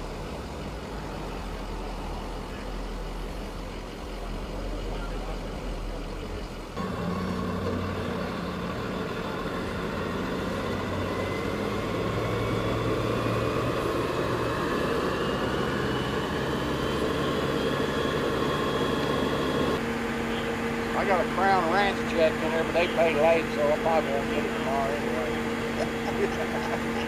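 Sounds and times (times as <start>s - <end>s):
rising engine whine: 0.0s - 27.0s
truck engine running: 0.0s - 27.0s.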